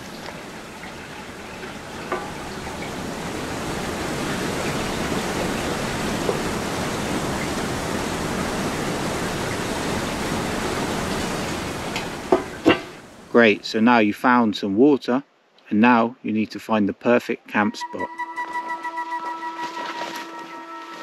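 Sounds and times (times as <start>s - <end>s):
river rushing over rapids: 0.0s - 13.4s.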